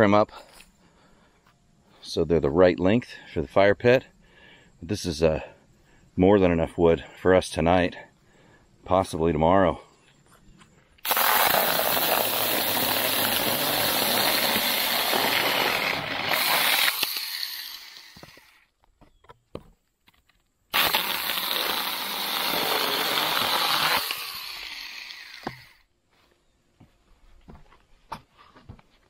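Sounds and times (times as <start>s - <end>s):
mini chainsaw cutting branch: 11.0s - 18.6s, 20.7s - 25.8s.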